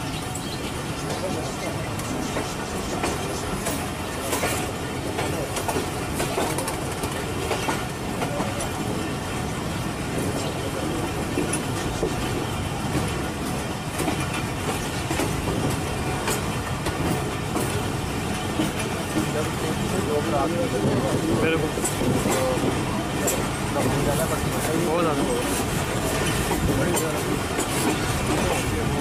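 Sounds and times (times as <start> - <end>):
train wheels rumbling on rails: 0.0 - 29.0
wheels clacking over rail joints: 0.0 - 29.0.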